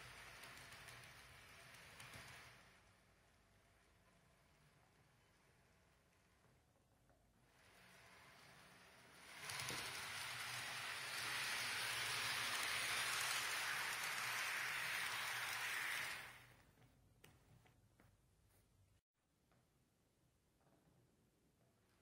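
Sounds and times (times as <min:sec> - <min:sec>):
model train wheels rolling on rails: 0:00.0 - 0:16.6.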